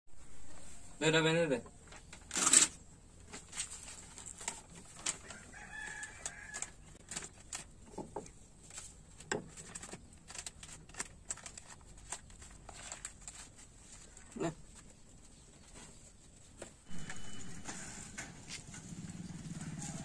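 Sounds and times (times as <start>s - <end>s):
paper crinkling and rustling: 3.2s - 18.9s.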